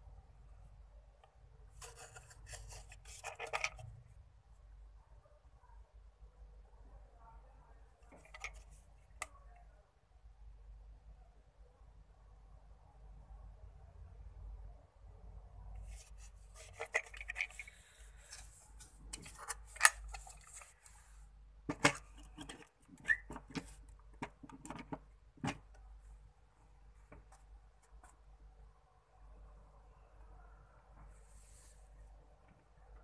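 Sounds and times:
light scraping: 0:01.7 - 0:04.0
plastic clicks and knocks: 0:21.7 - 0:25.8.

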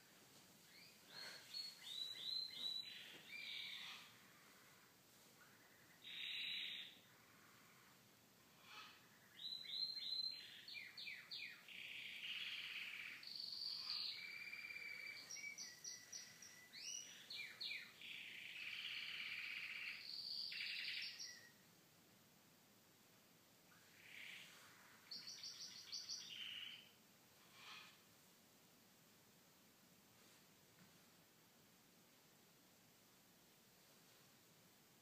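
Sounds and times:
birdsong: 0:00.7 - 0:04.6, 0:05.4 - 0:07.2, 0:08.6 - 0:21.6, 0:23.7 - 0:28.0.

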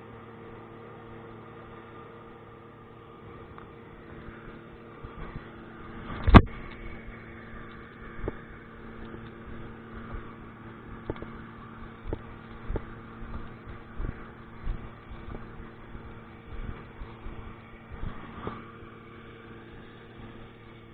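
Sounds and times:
diesel engine running: 0:00.0 - 0:20.9.

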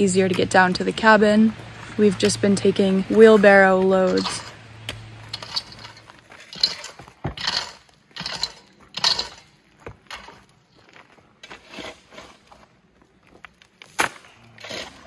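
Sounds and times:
shovel scraping gravel: 0:01.7 - 0:12.9, 0:13.7 - 0:15.0
stones clattering into wheelbarrow: 0:05.2 - 0:12.7.

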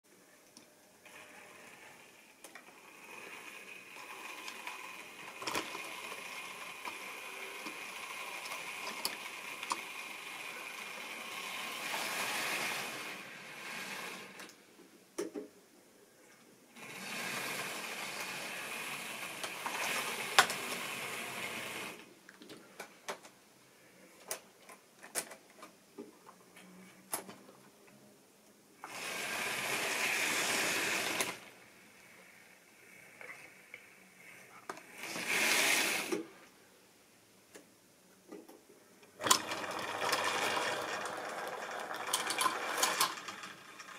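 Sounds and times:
small electric motor whirring: 0:01.1 - 0:14.5, 0:16.8 - 0:22.0, 0:28.8 - 0:31.5
wheels rattling over rails: 0:39.2 - 0:43.9.

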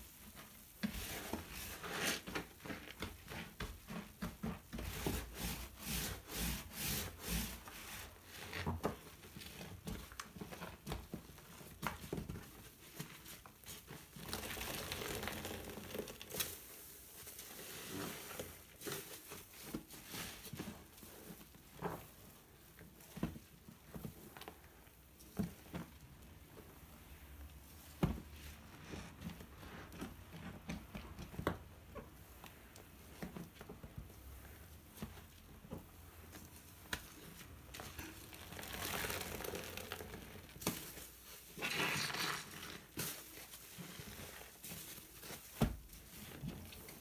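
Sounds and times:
soapy sponge squelching: 0:36.5 - 0:47.0.

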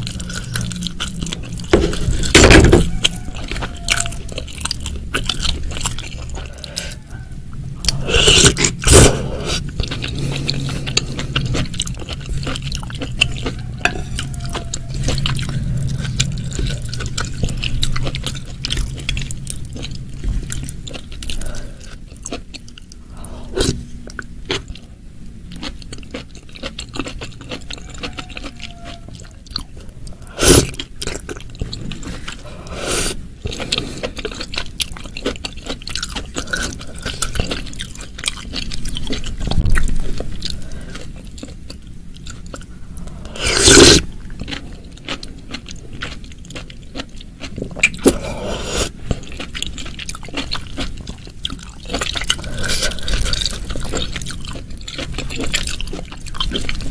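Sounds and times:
close chewing: 0:00.0 - 0:24.9, 0:25.5 - 0:56.9.

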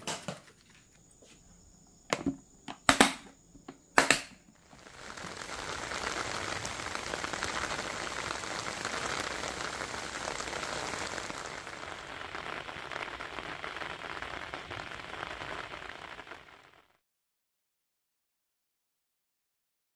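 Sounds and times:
steady rain falling: 0:04.6 - 0:16.9.

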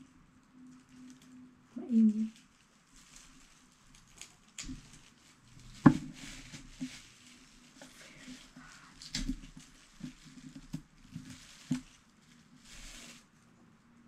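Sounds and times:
faint wrapping rustle: 0:00.0 - 0:14.0.

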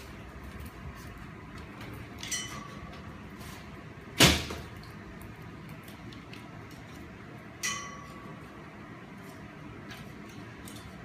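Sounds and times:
metal gate clanking: 0:02.2 - 0:03.2, 0:07.6 - 0:08.4.

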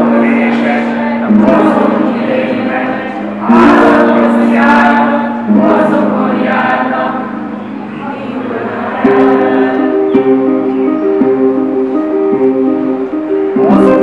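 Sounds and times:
choir singing long notes: 0:00.0 - 0:14.0.

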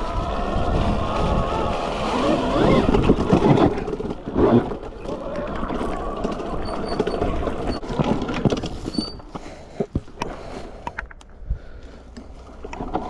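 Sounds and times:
wind on microphone: 0:00.0 - 0:04.7
tyres rumbling: 0:00.0 - 0:13.0
knocks and rattles from rough ground: 0:00.3 - 0:11.3, 0:12.1 - 0:13.0.

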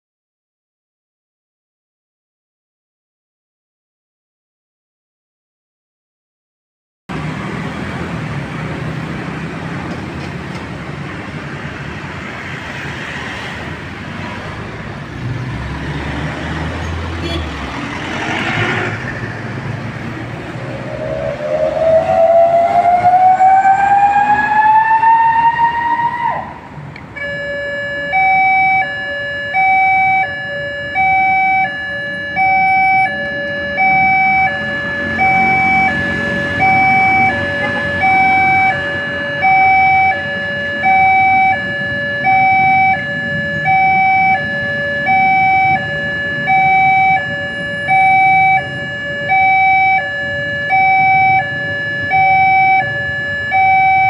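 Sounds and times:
rising siren wail: 0:18.4 - 0:54.0
two-tone electronic alarm: 0:20.7 - 0:26.4, 0:27.2 - 0:54.0.

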